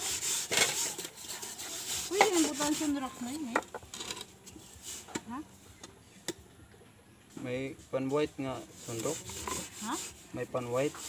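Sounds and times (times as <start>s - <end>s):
gritty scrubbing of a pot: 0.0s - 5.4s, 7.8s - 11.0s.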